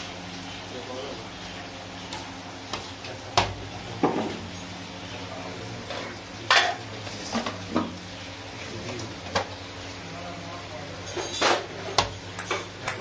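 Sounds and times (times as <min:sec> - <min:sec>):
metal plates and bowls clattering: 0:11.0 - 0:11.8.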